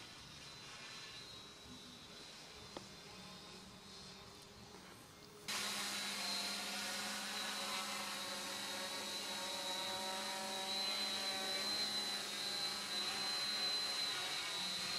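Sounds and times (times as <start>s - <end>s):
drone motors and propellers whining: 5.5s - 14.9s.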